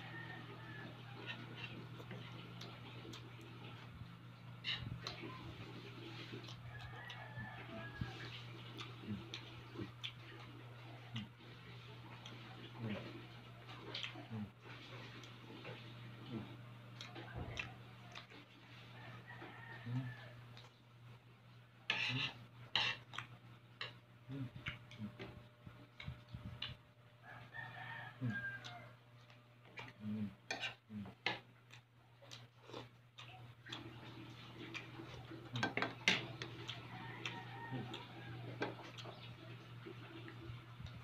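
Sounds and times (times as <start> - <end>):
rooster crowing: 0.0 - 1.6, 6.5 - 8.4, 17.2 - 20.4, 27.2 - 29.0, 34.0 - 39.1
chewing: 0.2 - 20.8, 21.9 - 26.8, 28.1 - 41.0.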